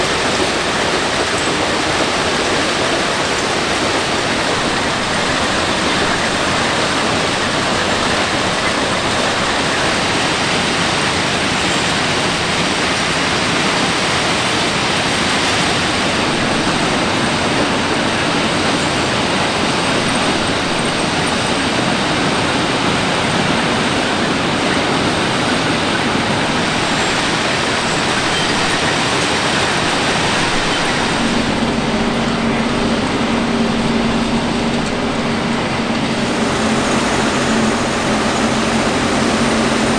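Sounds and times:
machine hum with low drone: 0:30.4 - 0:39.9.

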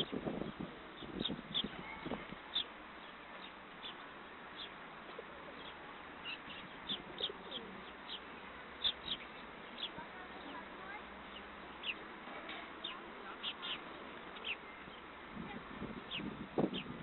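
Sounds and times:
sparrows chirping: 0:00.0 - 0:17.0
pigeon cooing: 0:05.1 - 0:05.7, 0:06.9 - 0:07.9.

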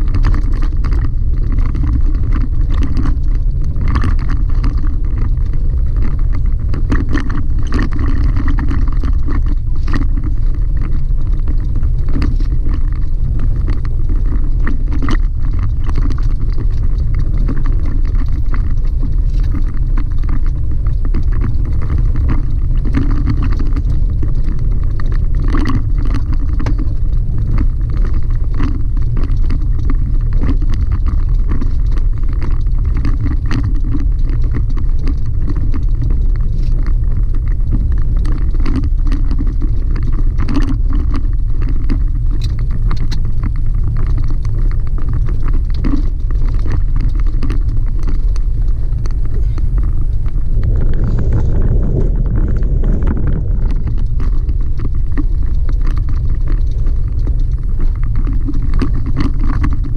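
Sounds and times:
knocks and rattles on gravel: 0:00.0 - 0:59.9
truck driving rumble: 0:40.7 - 0:59.9.

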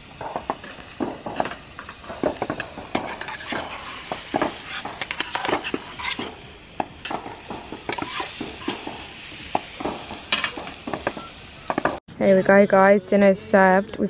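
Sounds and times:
food sizzling: 0:00.0 - 0:12.0
metal utensils scraping a pan: 0:00.2 - 0:12.0.

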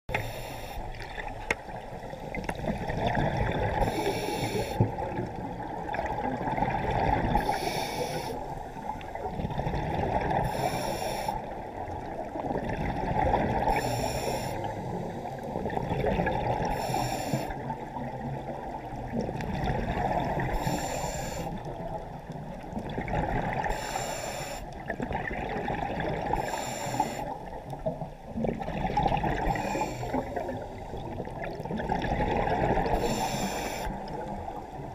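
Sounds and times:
regulator inhale hiss: 0:00.1 - 0:01.0, 0:03.8 - 0:04.9, 0:07.4 - 0:09.2, 0:10.4 - 0:11.6, 0:13.7 - 0:15.6, 0:16.7 - 0:17.8, 0:20.4 - 0:21.8, 0:23.6 - 0:24.8, 0:26.3 - 0:27.6, 0:29.5 - 0:31.0, 0:33.0 - 0:34.3
rush of exhaled bubbles: 0:00.9 - 0:08.4, 0:09.1 - 0:10.7, 0:11.7 - 0:13.9, 0:14.6 - 0:16.8, 0:17.6 - 0:20.8, 0:21.4 - 0:23.9, 0:24.8 - 0:34.9.

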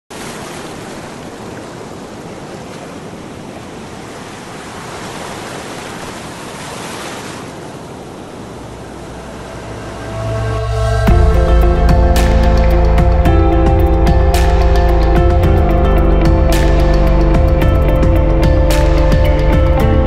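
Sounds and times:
ocean waves breaking: 0:00.1 - 0:20.0
low rumble: 0:08.5 - 0:20.0.

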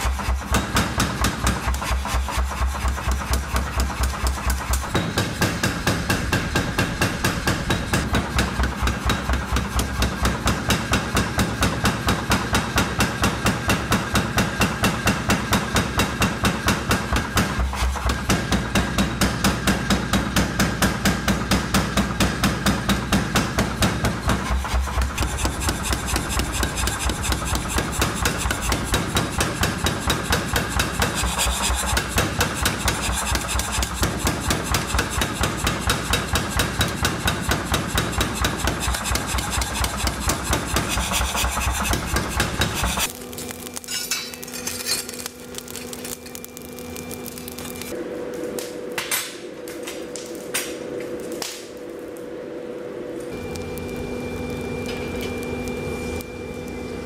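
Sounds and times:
power hammer pounding hot steel: 0:00.0 - 0:48.0
low hum: 0:50.8 - 0:57.0.

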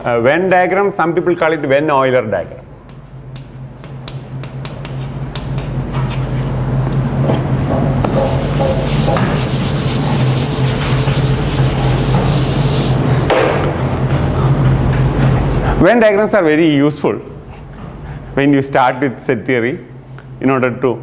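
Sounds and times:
low hum and hiss: 0:00.0 - 0:21.0
chalk scratching on blackboard: 0:02.5 - 0:06.5, 0:08.1 - 0:13.0.

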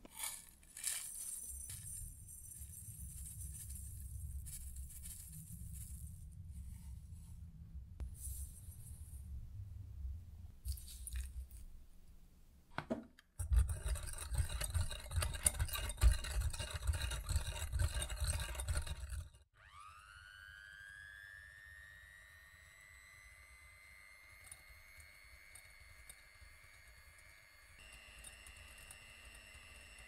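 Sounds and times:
electric hand mixer whirring: 0:18.1 - 0:30.0.

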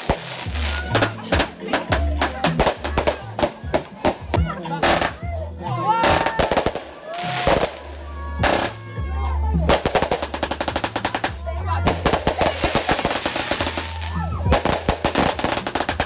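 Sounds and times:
firework bangs: 0:00.0 - 0:05.2, 0:06.0 - 0:08.8, 0:09.7 - 0:16.0
firework barrage shots: 0:00.0 - 0:05.2, 0:06.0 - 0:08.8, 0:09.7 - 0:16.0.

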